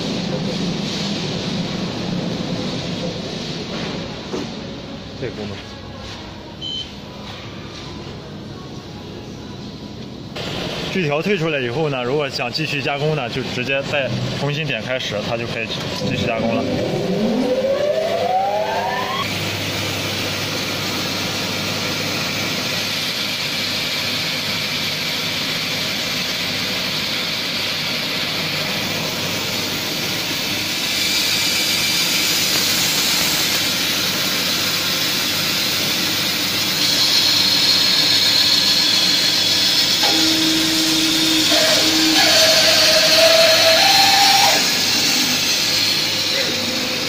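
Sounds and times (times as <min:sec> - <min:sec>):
band saw motor whine: 0:15.5 - 0:22.8, 0:35.6 - 0:47.0
saw blade cutting wood: 0:36.8 - 0:46.6.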